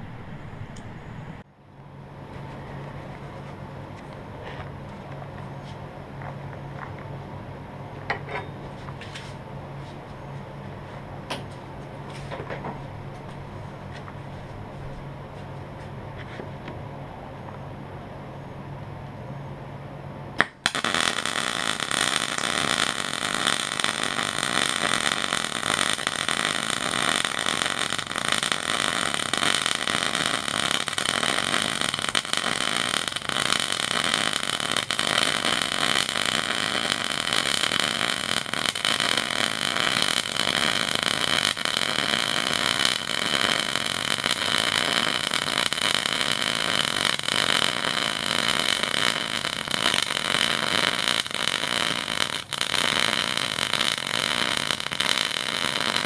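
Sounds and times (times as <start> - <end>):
welder arc crackling: 20.4 - 56.0.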